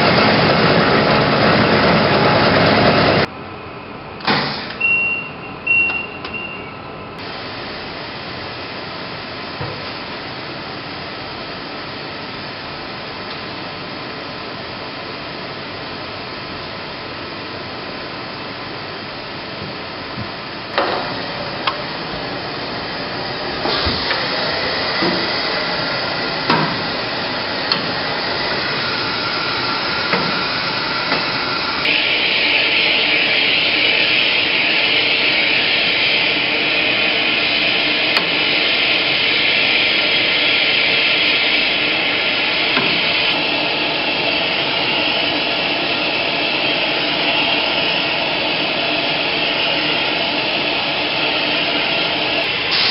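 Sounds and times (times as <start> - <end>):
short electronic beep: 4.8 - 6.9
blower hiss: 19.2 - 52.9.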